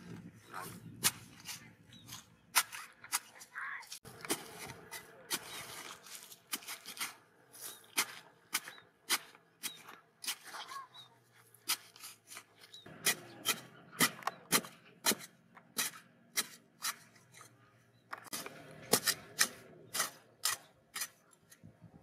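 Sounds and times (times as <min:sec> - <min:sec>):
hoe chopping into dry soil: 0:04.1 - 0:10.5, 0:18.2 - 0:21.2.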